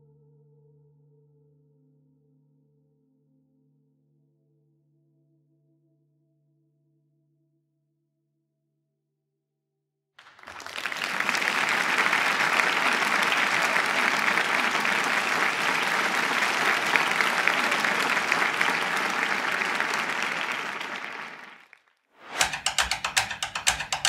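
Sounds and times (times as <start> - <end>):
audience applauding: 10.2 - 24.0.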